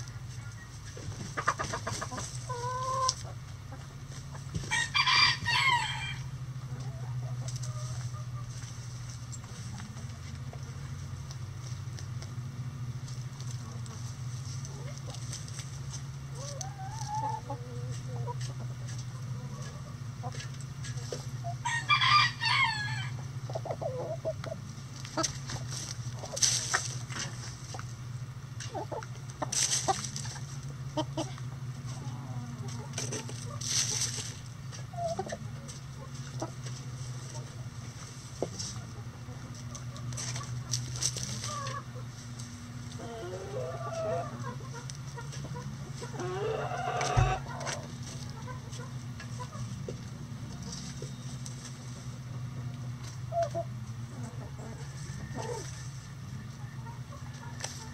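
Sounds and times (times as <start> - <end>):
hens clucking softly: 0.0 - 12.3, 13.1 - 57.9
steady low hum: 0.0 - 57.9
rooster crowing: 4.7 - 6.3, 21.6 - 23.2, 54.7 - 55.8.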